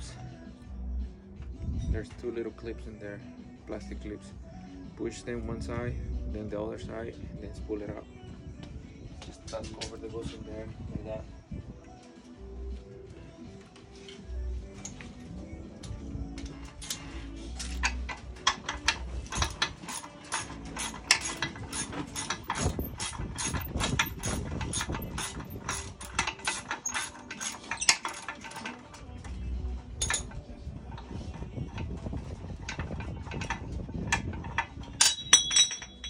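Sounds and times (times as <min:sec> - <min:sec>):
ratchet wrench clicking: 0:17.6 - 0:28.8
metallic clink: 0:30.0 - 0:30.4, 0:34.5 - 0:36.0.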